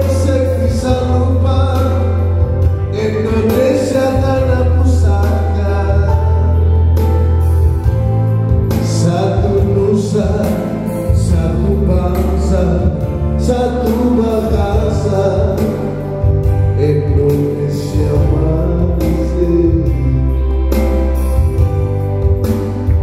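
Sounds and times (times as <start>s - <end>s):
man singing into a microphone: 0.0s - 21.6s
music with heavy bass line: 0.0s - 23.0s.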